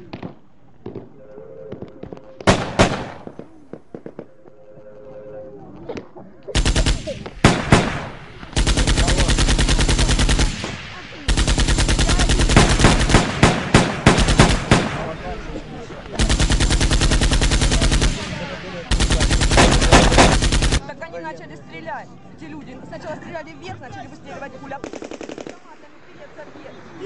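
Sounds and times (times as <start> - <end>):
automatic gunfire bursts: 2.4 - 4.2, 6.6 - 20.8, 24.8 - 25.6
single gunshots: 2.4 - 4.2, 6.6 - 20.8.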